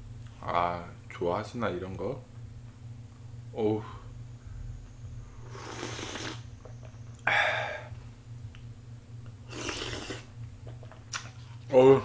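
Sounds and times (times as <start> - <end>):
steady low hum: 0.0 - 12.0
man slurping from a spoon: 5.5 - 6.4, 9.5 - 10.3.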